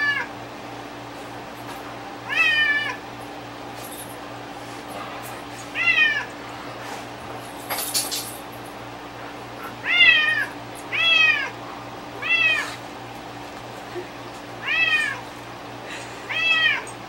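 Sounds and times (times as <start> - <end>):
cat meowing: 0.0 - 0.3, 2.3 - 3.0, 5.7 - 6.3, 9.8 - 11.6, 12.2 - 12.8, 14.6 - 15.2, 16.3 - 16.9
rustling clatter: 6.8 - 8.6.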